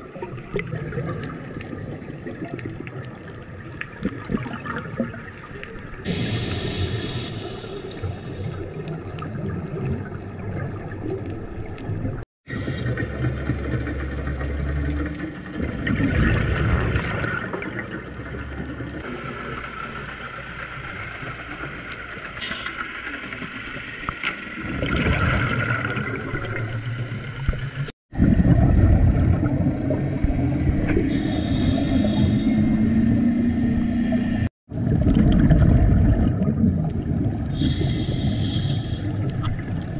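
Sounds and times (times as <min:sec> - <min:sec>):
gurgle of exhaled bubbles: 0:00.0 - 0:13.5, 0:15.1 - 0:19.8, 0:24.4 - 0:33.3, 0:34.0 - 0:39.9
scuba regulator breathing: 0:06.1 - 0:08.7, 0:31.0 - 0:33.0, 0:37.5 - 0:39.3.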